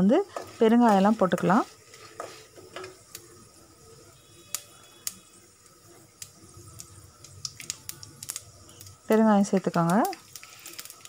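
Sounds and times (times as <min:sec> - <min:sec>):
spoon scraping and tapping a pan: 0:00.3 - 0:03.0.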